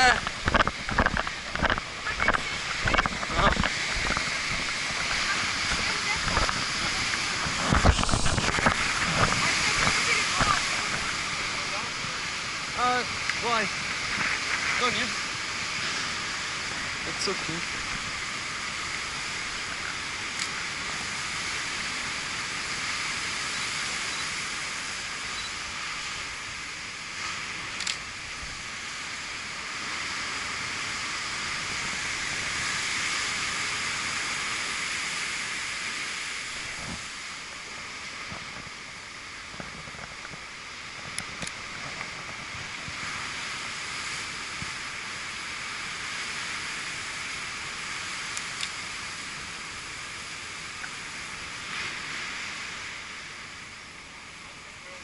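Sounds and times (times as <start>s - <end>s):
waves breaking: 0.0s - 55.0s
faint clicks: 48.3s - 48.8s.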